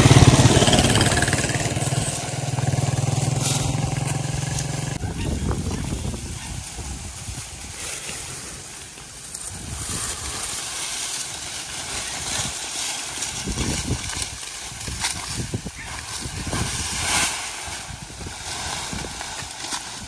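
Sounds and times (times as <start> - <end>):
corn stalks rustling: 0.0 - 20.0
wind buffeting the microphone: 2.5 - 10.6, 13.2 - 20.0.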